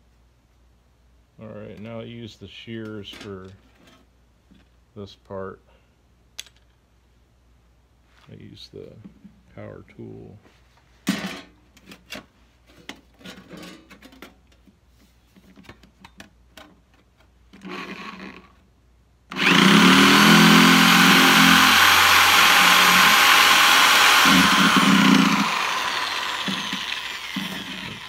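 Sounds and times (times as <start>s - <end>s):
electric shears motor whine: 19.3s - 28.0s.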